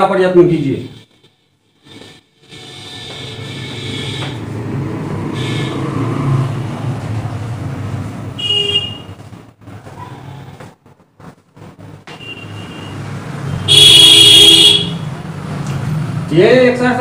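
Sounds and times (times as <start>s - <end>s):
vehicle engine rumbling past: 4.4s - 8.4s.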